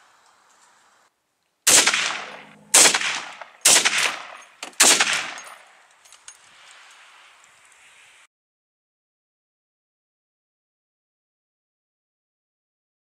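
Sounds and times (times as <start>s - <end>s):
rifle shots echoing: 1.7s - 5.8s.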